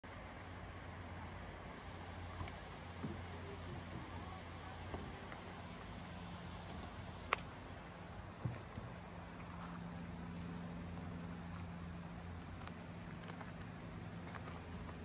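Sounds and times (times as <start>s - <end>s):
steady low hum: 0.0s - 15.0s
footsteps on gravel: 8.4s - 15.0s.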